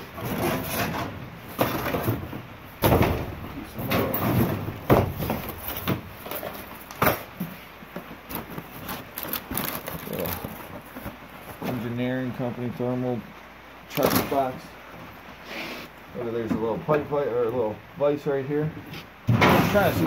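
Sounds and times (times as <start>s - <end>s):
objects knocking and scraping: 0.0s - 11.8s.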